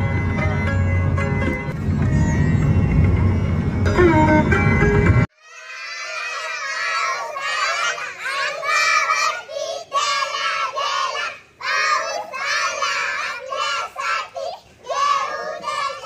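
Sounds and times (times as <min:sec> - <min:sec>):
girls singing together: 0:05.4 - 0:16.0.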